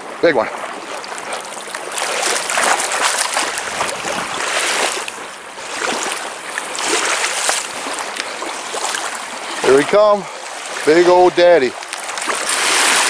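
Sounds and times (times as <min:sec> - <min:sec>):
lake water sloshing and splashing: 0:00.0 - 0:13.0.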